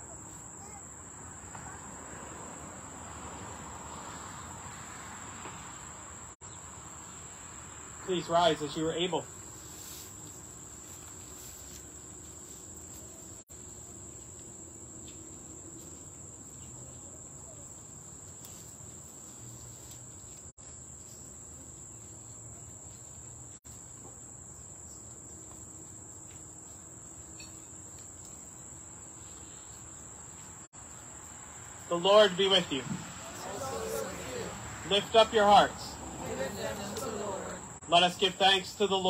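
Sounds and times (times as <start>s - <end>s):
faint low background hum: 31.9s - 38.8s.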